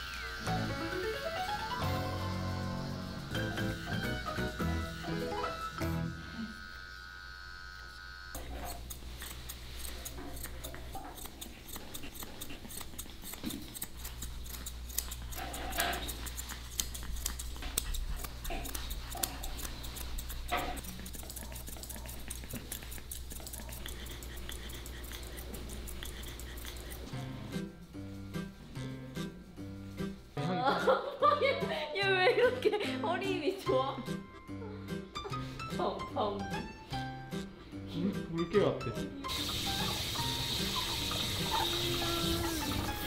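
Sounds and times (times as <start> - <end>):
shears snipping hair: 0.0 - 28.2, 39.3 - 43.0.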